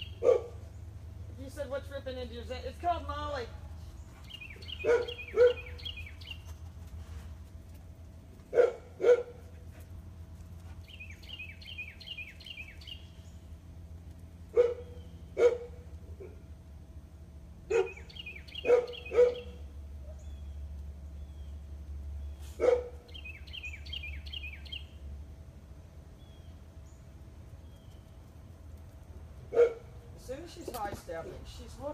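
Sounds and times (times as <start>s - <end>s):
dog barking: 0.2s - 0.6s, 4.8s - 5.8s, 8.5s - 9.4s, 14.5s - 16.4s, 17.7s - 20.2s, 22.6s - 23.0s, 29.5s - 29.9s
bird chirping: 2.6s - 6.7s, 10.7s - 13.6s, 17.7s - 25.1s, 26.2s - 28.3s.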